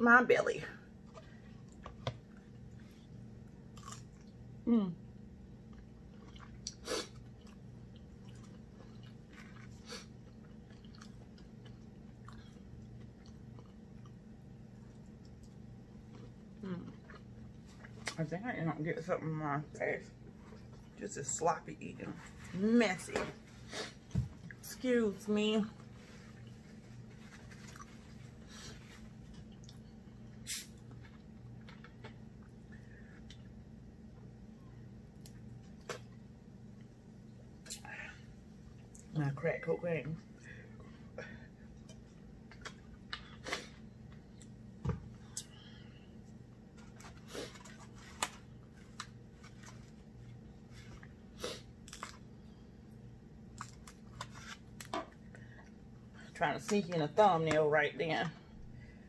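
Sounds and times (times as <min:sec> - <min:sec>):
low steady hum: 0:00.0 - 0:59.0
faint chewing and mouth clicks: 0:05.6 - 0:18.2, 0:29.2 - 0:30.2
short hiss: 0:30.4 - 0:30.7.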